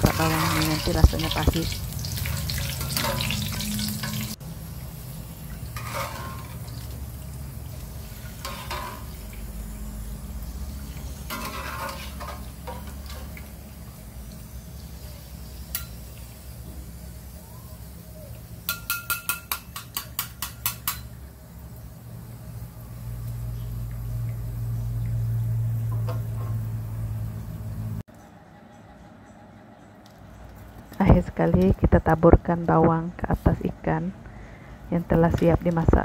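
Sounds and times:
low hum: 0.0 - 18.3, 21.2 - 36.0
oil sizzling in a wok: 0.0 - 28.1.

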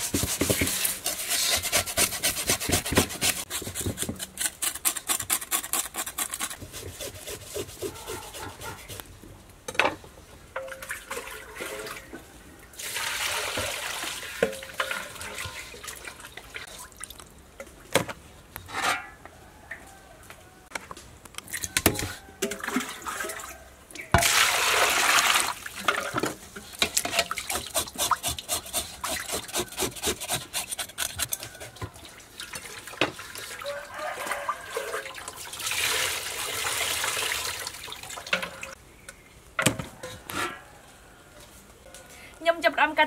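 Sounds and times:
water splashing in metal basin: 10.6 - 12.1, 12.8 - 17.2, 22.4 - 23.6, 24.2 - 27.7, 32.0 - 38.8.

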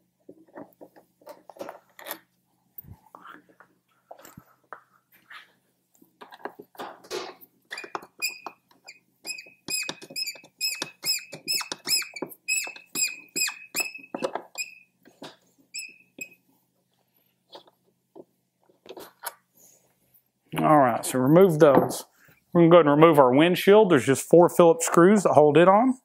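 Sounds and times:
bolt squeaking in chirps: 7.7 - 15.0, 15.7 - 16.4.

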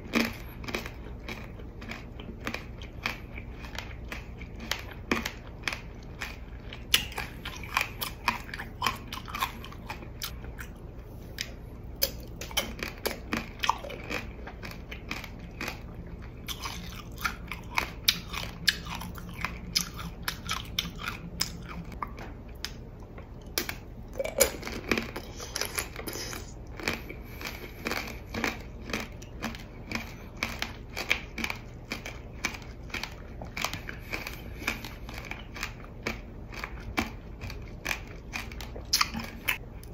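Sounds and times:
crunchy candy chewing: 0.0 - 22.8, 23.4 - 39.9.

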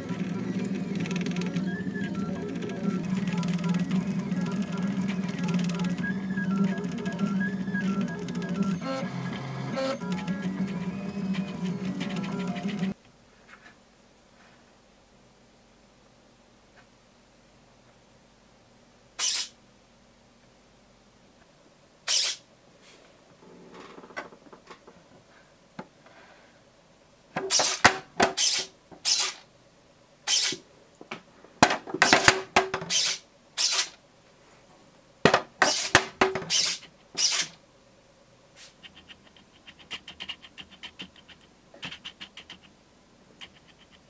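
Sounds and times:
servo motor whirring: 36.5 - 37.5
rapid ticking: 38.8 - 42.8, 43.4 - 44.0.

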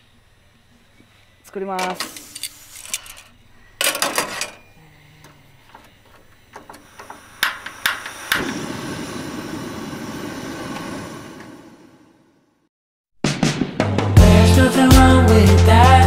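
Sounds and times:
gas flame hissing: 6.6 - 12.7.

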